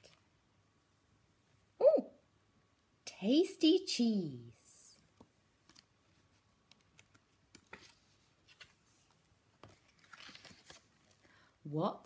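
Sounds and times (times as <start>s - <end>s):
book pages and flaps turning: 5.6s - 11.3s.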